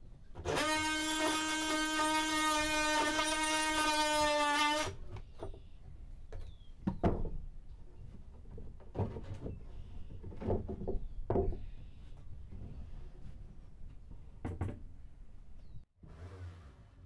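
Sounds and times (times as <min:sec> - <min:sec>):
plywood knocking and scraping: 0:05.0 - 0:15.0.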